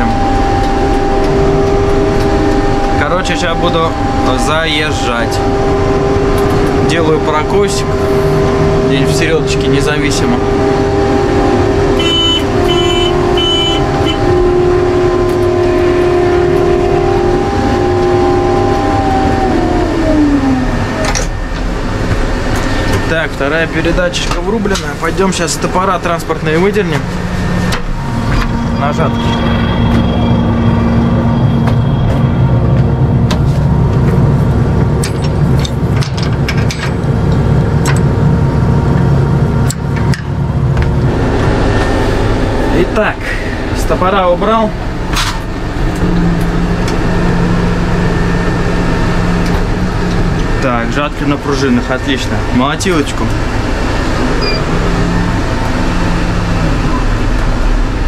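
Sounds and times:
harvester engine: 0:00.0 - 0:58.0
mechanical whine: 0:00.0 - 0:58.0
short high beeps: 0:54.4 - 0:54.7.

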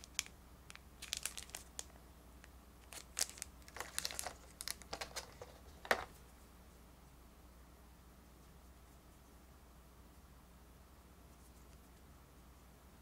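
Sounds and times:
plastic blister tray crinkling: 0:00.0 - 0:01.9, 0:02.8 - 0:06.2.

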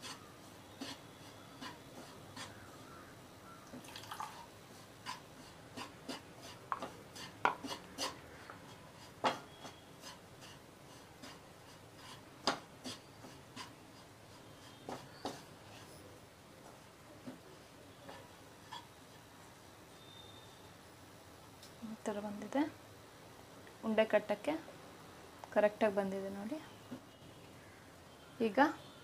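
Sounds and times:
wooden spatula scraping a pan: 0:00.0 - 0:02.8, 0:04.7 - 0:16.1.

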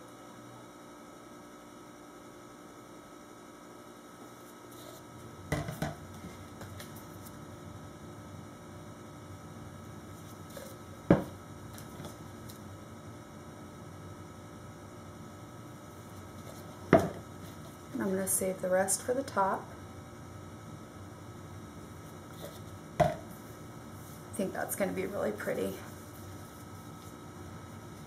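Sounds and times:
low electrical hum: 0:00.0 - 0:28.0
plastic pitcher set down on counter: 0:05.5 - 0:06.0, 0:11.1 - 0:11.3, 0:16.9 - 0:17.2, 0:23.0 - 0:23.2.

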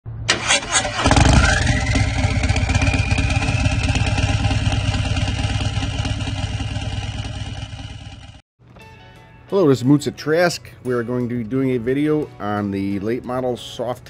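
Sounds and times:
motorcycle engine starting and running: 0:00.3 - 0:08.4.

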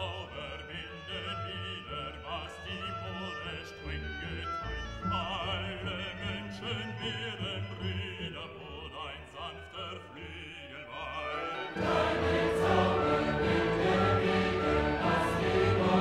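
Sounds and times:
choir and orchestra: 0:00.0 - 0:16.0
operatic voice singing: 0:00.0 - 0:16.0.

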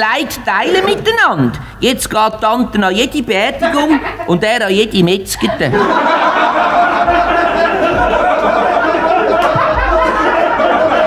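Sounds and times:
audience laughing: 0:05.4 - 0:11.0.

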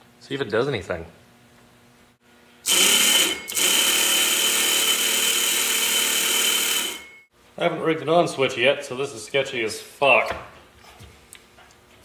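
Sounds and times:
electric motor high whine: 0:02.6 - 0:07.3.

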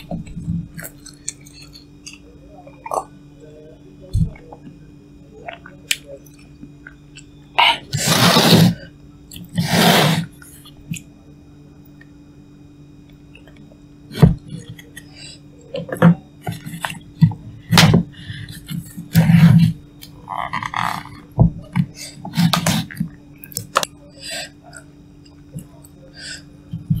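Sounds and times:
slurping noodles: 0:07.9 - 0:08.9, 0:09.5 - 0:10.3.

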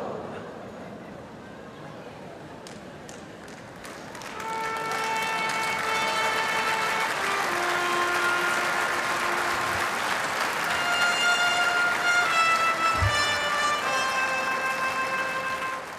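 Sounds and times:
audience applauding: 0:03.1 - 0:15.9
music with long held notes: 0:04.3 - 0:15.9.

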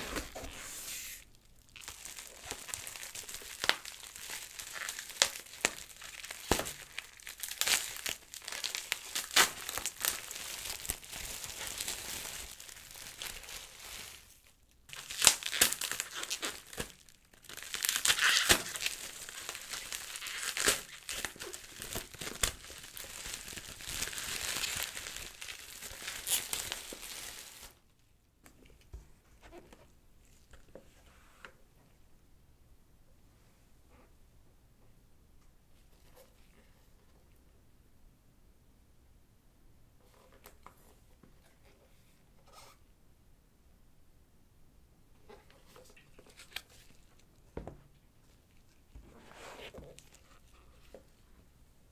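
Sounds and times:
packaging wrap crinkling: 0:01.2 - 0:27.8.

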